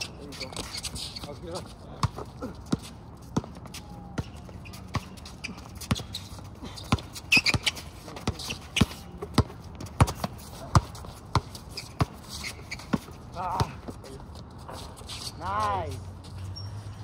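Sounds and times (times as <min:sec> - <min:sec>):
basketball bouncing on asphalt: 0:01.6 - 0:14.8.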